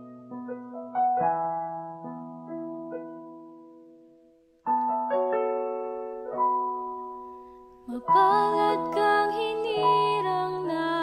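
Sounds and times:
person singing with vibrato: 7.8s - 11.0s.

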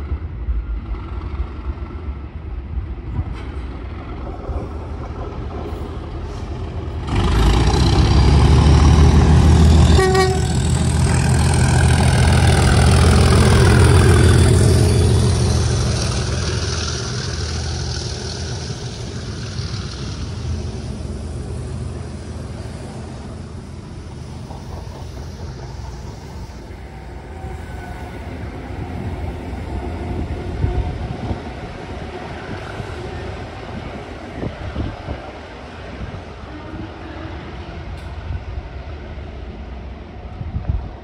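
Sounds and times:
diesel locomotive engine rumble: 0.0s - 41.0s
train horn toot: 9.8s - 10.8s.

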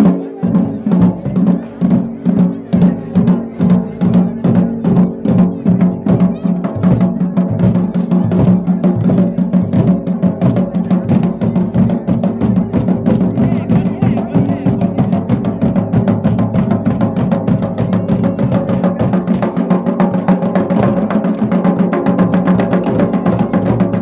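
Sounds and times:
drums beaten in fast rhythm: 0.0s - 24.0s.

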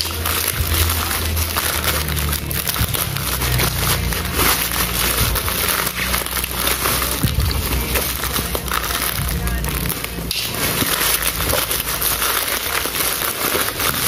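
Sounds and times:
plastic wrap crinkling: 0.0s - 14.0s.

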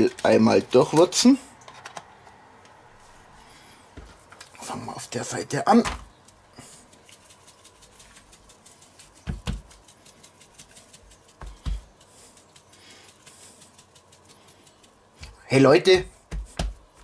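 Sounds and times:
spice shaker ticking: 6.0s - 17.0s.

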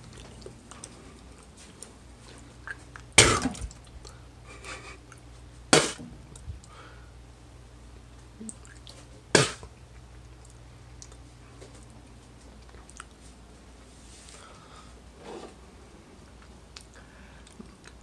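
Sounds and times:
person eating with mouth clicks: 0.0s - 4.2s, 8.4s - 11.3s, 12.6s - 13.2s, 16.4s - 18.0s
person coughing: 3.2s - 3.6s, 9.4s - 9.6s.

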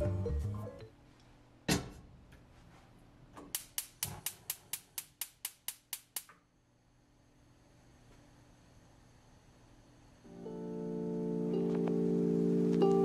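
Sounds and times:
spark igniter clicking: 3.5s - 6.4s.

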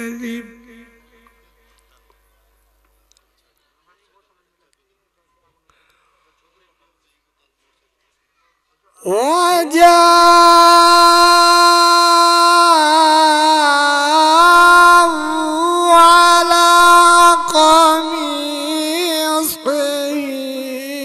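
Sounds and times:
person reciting in melodic chant: 0.0s - 2.2s, 8.9s - 21.0s.

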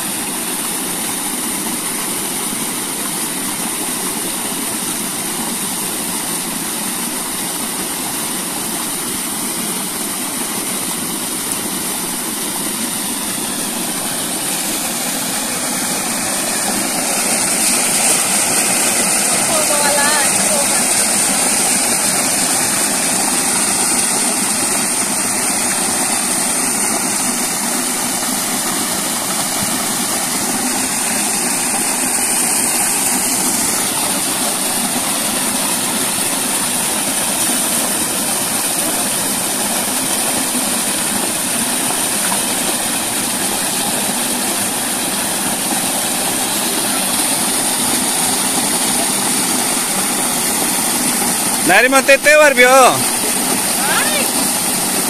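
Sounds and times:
water gushing from pipe: 0.0s - 55.0s.

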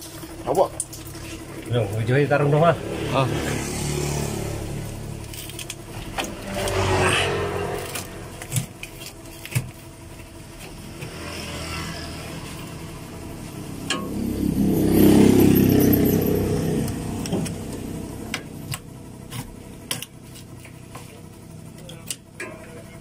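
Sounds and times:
motor vehicle passing by: 0.6s - 9.6s, 10.6s - 19.2s.

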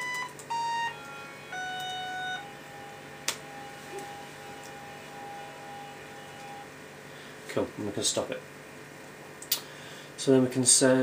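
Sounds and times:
electronic synth tone: 0.0s - 7.1s.

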